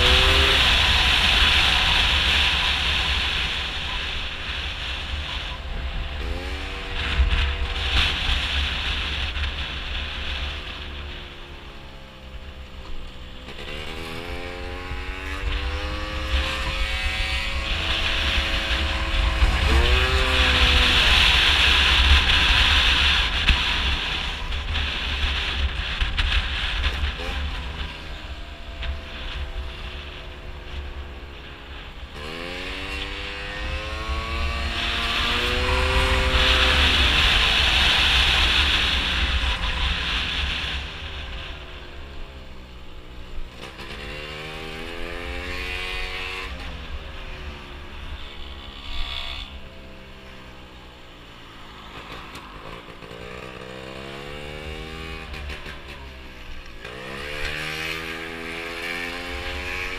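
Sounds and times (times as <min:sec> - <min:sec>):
scooter engine accelerating: 0:00.0 - 0:59.9.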